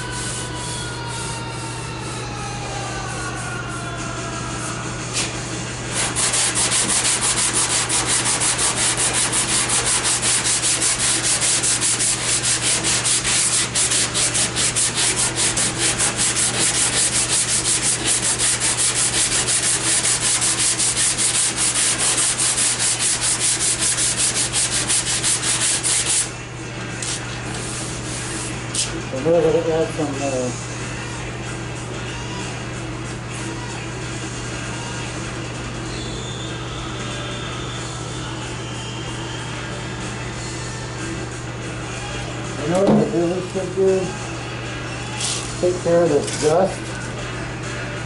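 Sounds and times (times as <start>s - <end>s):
sandpaper scratching by hand: 6.0s - 26.3s.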